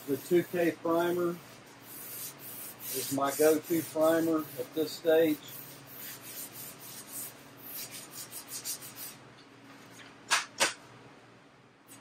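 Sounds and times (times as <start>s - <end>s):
sandpaper rubbing on metal: 0.0s - 9.2s.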